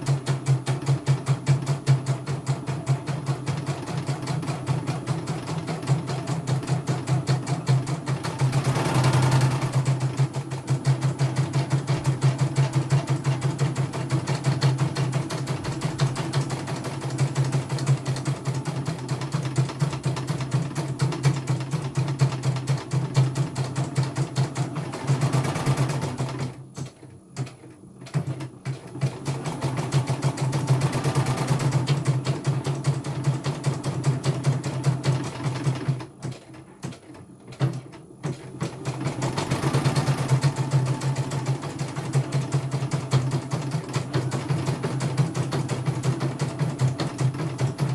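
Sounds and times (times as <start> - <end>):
embroidery machine stitching: 0.0 - 47.9.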